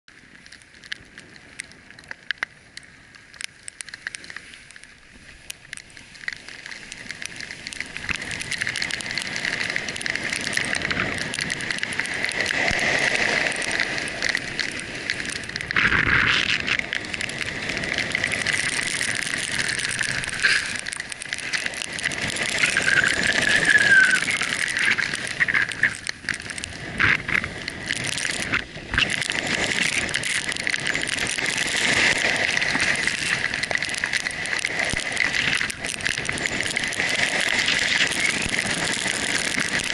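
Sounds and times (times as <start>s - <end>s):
wind rushing on microphone: 7.0s - 39.9s
snow hissing under sled: 19.4s - 20.9s, 22.1s - 25.9s.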